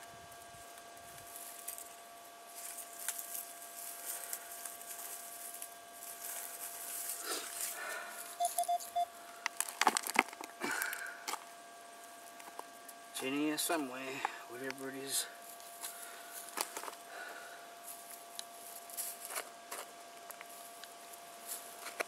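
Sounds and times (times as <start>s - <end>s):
hands scraping dry soil: 1.0s - 7.9s
short quick beeps: 8.4s - 9.1s
faint electronic tone: 8.4s - 9.2s.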